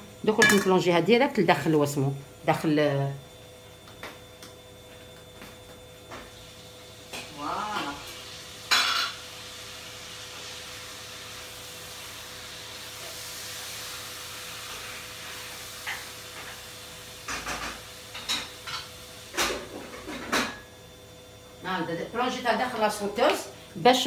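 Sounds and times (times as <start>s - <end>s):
frying sizzle: 5.4s - 24.0s.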